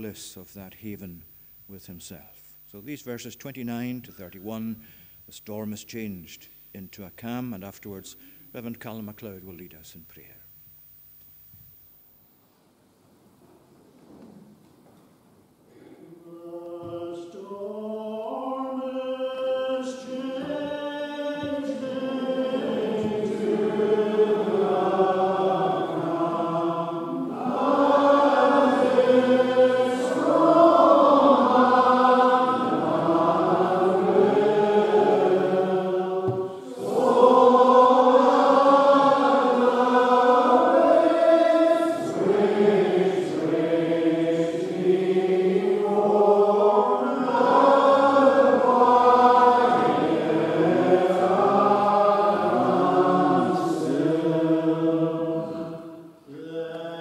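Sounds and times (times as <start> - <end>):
congregation singing a psalm: 15.7 - 57.0
single voice singing: 15.7 - 57.0.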